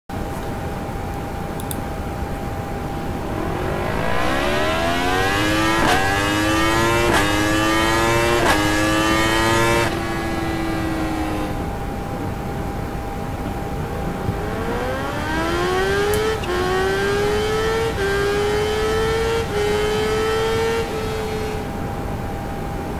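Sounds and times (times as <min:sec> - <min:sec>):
motorcycle engine accelerating: 0:02.3 - 0:12.0, 0:14.0 - 0:21.8.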